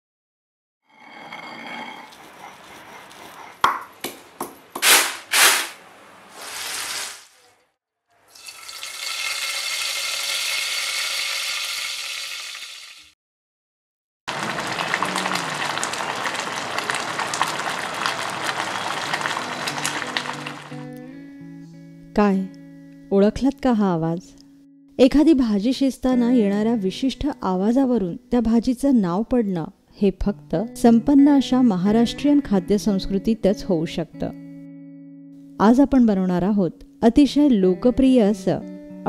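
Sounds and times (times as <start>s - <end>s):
stone mortar knocking: 3.5s - 5.0s
oil sizzling in a pan: 8.3s - 13.1s, 14.3s - 20.9s.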